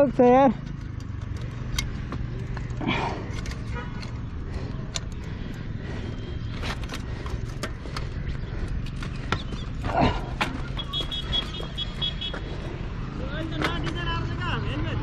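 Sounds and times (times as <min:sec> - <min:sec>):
bicycle clicks and rattles: 0:00.0 - 0:12.0.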